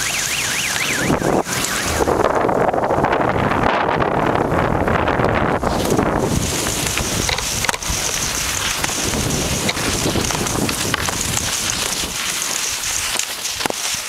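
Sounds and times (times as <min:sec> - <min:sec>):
skis sliding on snow: 0:00.0 - 0:02.4, 0:05.4 - 0:14.0
wind rumbling on microphone: 0:00.0 - 0:14.0.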